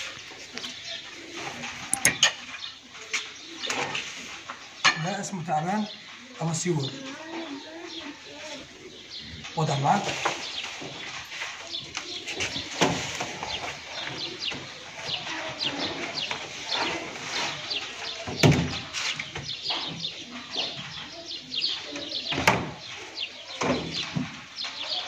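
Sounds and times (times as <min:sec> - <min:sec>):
small birds chirping: 0:00.0 - 0:25.0.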